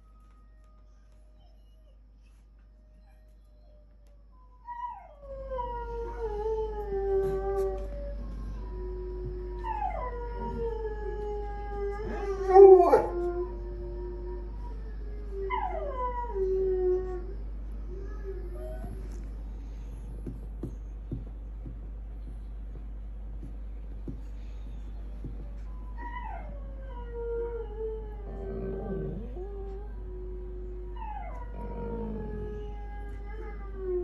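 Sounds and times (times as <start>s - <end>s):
dogs howling: 4.6s - 17.5s, 25.7s - 34.0s.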